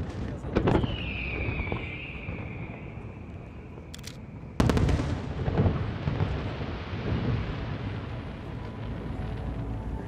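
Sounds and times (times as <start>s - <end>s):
faint firework crackles: 0.0s - 10.0s
firework whistle: 0.7s - 3.9s.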